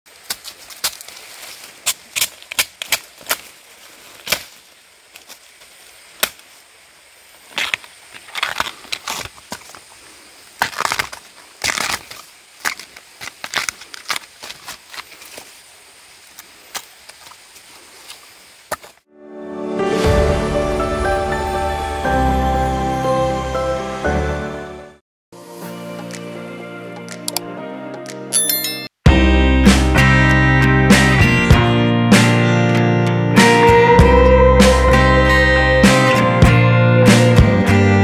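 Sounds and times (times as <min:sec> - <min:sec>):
husk tearing and peeling: 0:07.6 - 0:09.5, 0:10.6 - 0:15.1.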